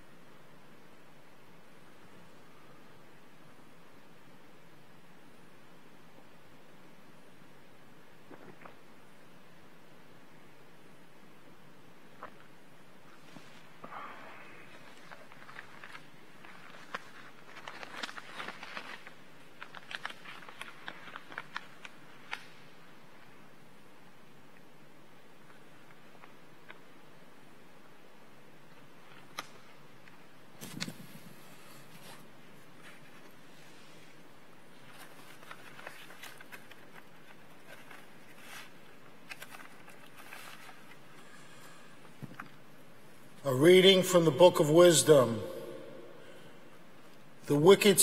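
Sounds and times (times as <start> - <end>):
room hiss: 0.0 - 48.0
paper and cloth rustle: 13.1 - 22.8, 30.6 - 42.4.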